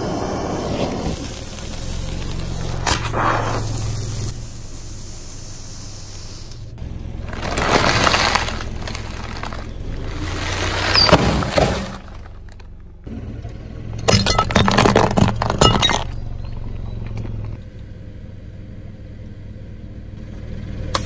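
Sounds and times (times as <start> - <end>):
snack bag crinkling under tyre: 7.2 - 12.8
tyre crushing something brittle: 7.2 - 12.8.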